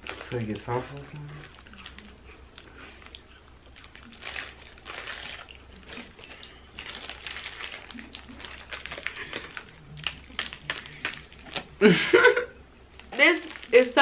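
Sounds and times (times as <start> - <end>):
crunching of crisp toast: 0.0 - 11.8
snack wrappers crinkling: 0.0 - 11.9, 12.8 - 14.0.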